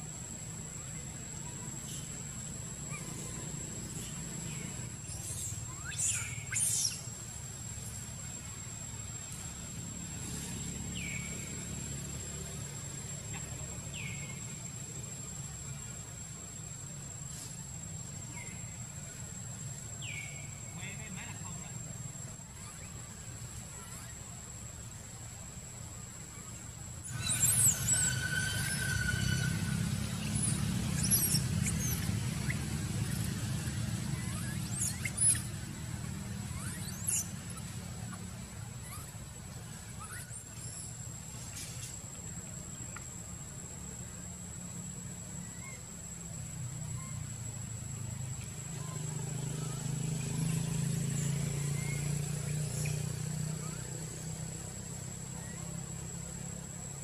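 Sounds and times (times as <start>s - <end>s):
falling whistled calls: 2.8s - 7.3s, 27.0s - 41.0s
infant monkey squeaking: 5.2s - 7.1s, 27.0s - 33.3s, 34.0s - 35.6s, 36.4s - 39.2s, 39.8s - 41.0s.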